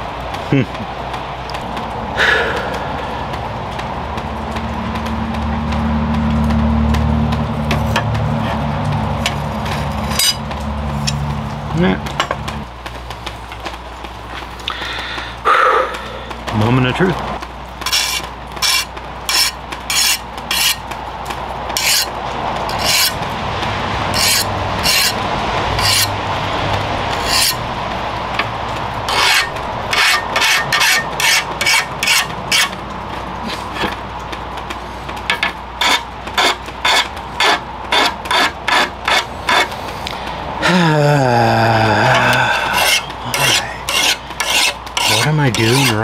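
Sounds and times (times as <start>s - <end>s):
file rasping on steel blade: 9.7s - 10.4s, 17.9s - 20.8s, 21.8s - 23.2s, 24.1s - 25.2s, 25.8s - 26.1s, 27.1s - 27.6s, 29.1s - 32.8s, 35.3s - 39.8s, 42.2s - 46.0s.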